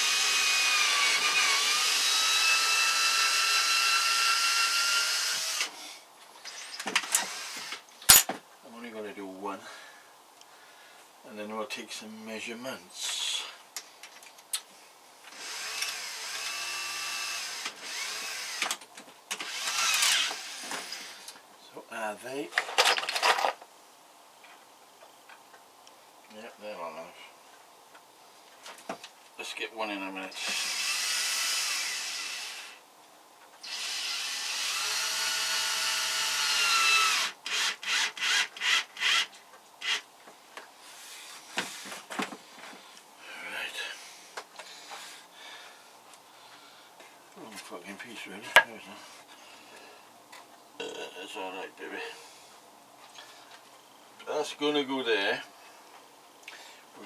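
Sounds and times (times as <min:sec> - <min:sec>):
electric power tool whining: 0:00.0 - 0:05.8, 0:06.5 - 0:08.2, 0:15.3 - 0:21.4, 0:33.6 - 0:40.0
tool handling clicks: 0:08.0 - 0:08.3.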